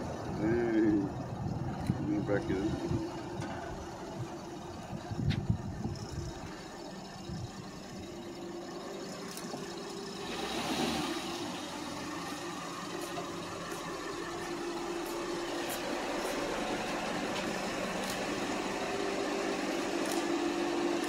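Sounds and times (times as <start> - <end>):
car engine idling: 0.0 - 21.0.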